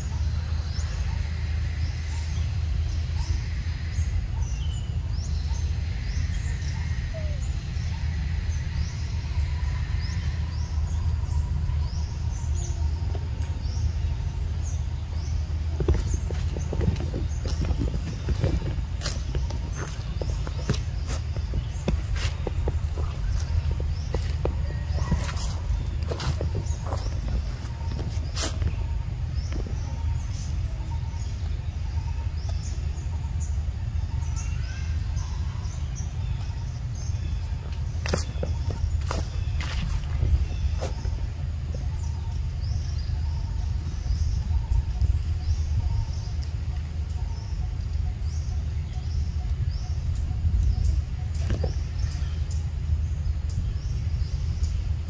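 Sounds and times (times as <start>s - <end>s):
small birds chirping: 0.0s - 55.0s
steady low rumble: 0.0s - 55.0s
rustles and clicks: 15.6s - 30.0s
high bird chirps: 15.8s - 33.4s.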